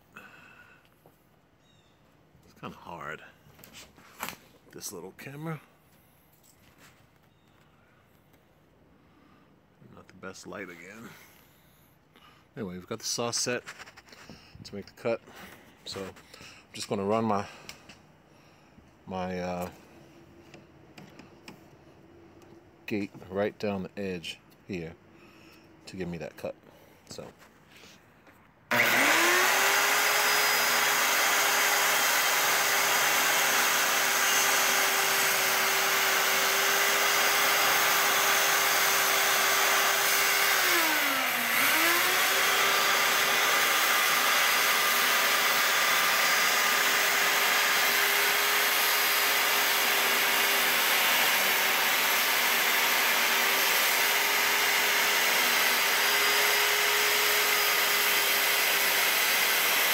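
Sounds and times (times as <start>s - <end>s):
circular saw cutting wood: 28.7s - 59.9s.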